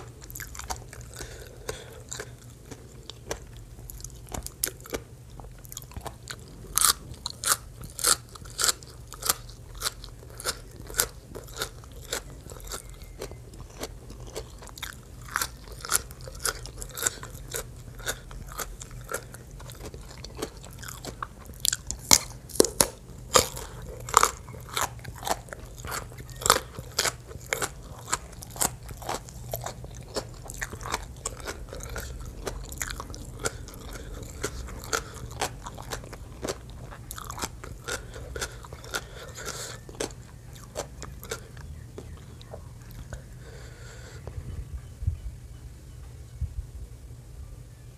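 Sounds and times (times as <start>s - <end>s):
crunching raw vegetables: 0.0s - 44.4s.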